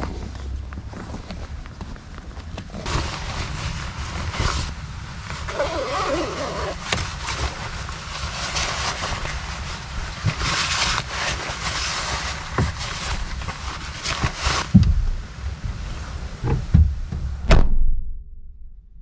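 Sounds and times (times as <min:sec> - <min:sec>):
bag rustling and handling: 0:00.0 - 0:14.7.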